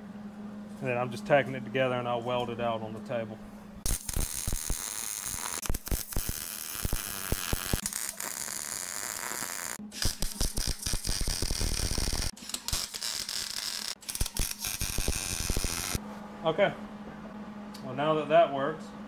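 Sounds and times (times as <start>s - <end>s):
arc welder crackling sizzle: 3.8s - 16.0s.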